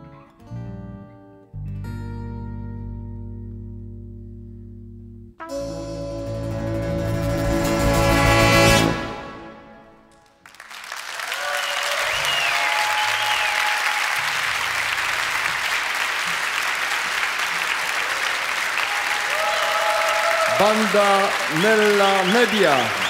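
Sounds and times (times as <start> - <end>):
band chord reverberating: 5.4 - 10.2
audience applause: 10.1 - 23.0.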